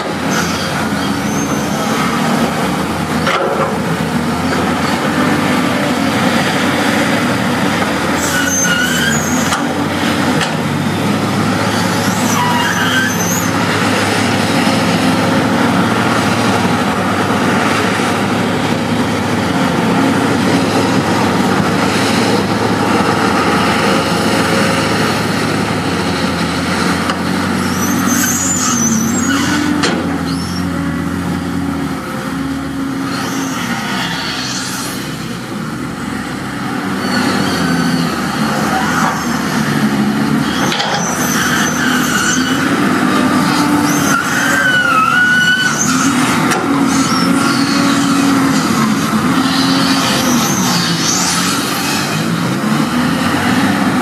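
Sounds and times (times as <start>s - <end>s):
heavy diesel machinery running: 0.0s - 54.0s
brief high-pitched squeals: 0.3s - 1.9s, 8.2s - 9.6s, 11.7s - 13.6s, 27.6s - 30.7s, 40.4s - 42.6s, 43.5s - 46.1s.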